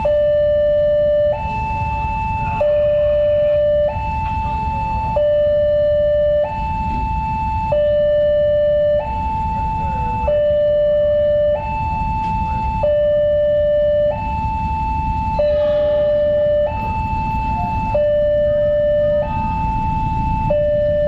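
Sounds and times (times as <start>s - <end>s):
level crossing two-tone alarm: 0.0s - 21.0s
low rumble: 14.6s - 20.6s.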